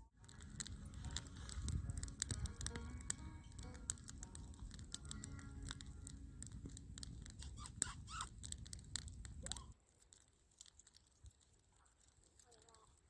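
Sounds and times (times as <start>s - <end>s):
low steady rumble: 0.0s - 9.8s
campfire crackling and popping: 0.0s - 13.0s.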